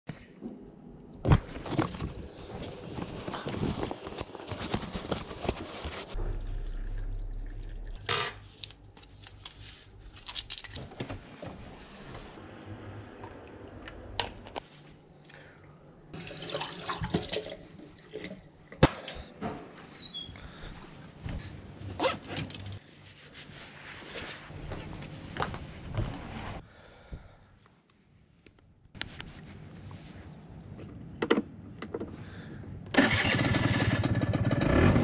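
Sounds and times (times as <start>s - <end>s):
low hum: 5.9s - 10.2s.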